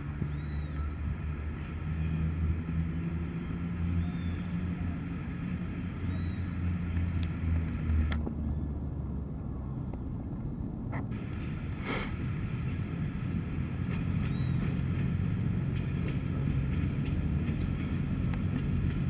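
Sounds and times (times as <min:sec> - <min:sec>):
diesel railcar engine drone: 0:00.0 - 0:19.0
sharp click: 0:06.9 - 0:08.3.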